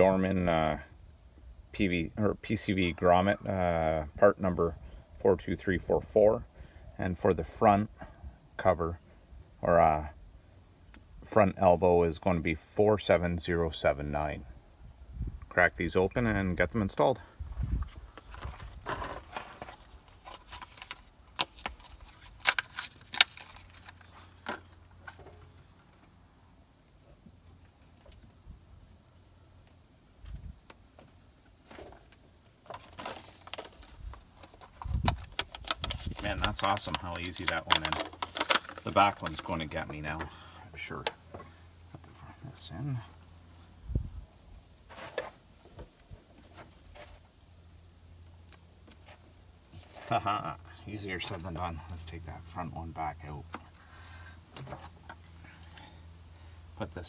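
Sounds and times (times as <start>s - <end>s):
packaging crinkling: 18.3s - 24.6s, 32.7s - 39.6s.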